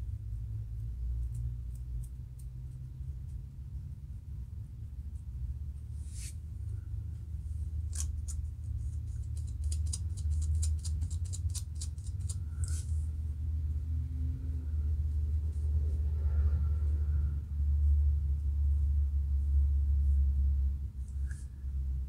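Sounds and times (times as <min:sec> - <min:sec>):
steady low hum: 0:00.0 - 0:22.0
scratching scalp: 0:06.0 - 0:06.4, 0:07.9 - 0:13.0.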